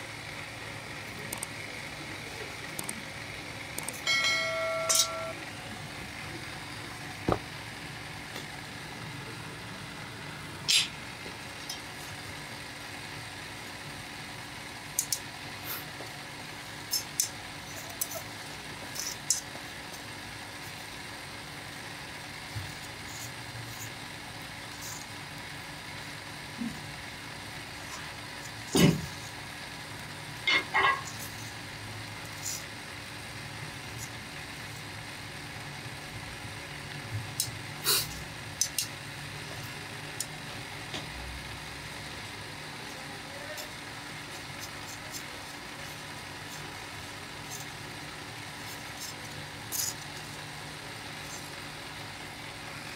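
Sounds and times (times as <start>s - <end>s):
steady background hum: 0.0s - 52.9s.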